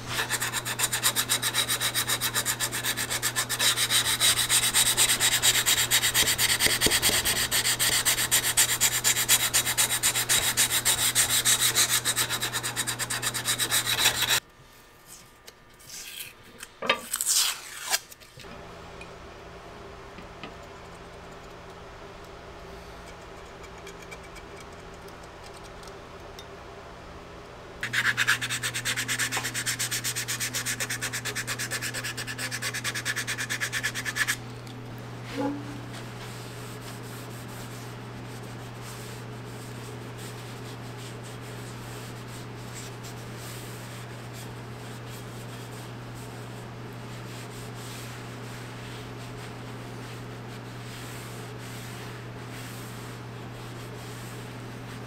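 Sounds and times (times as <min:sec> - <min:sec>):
steady electric hum: 0:00.0 - 0:55.0
sandpaper rasping: 0:00.1 - 0:14.4, 0:27.8 - 0:34.4.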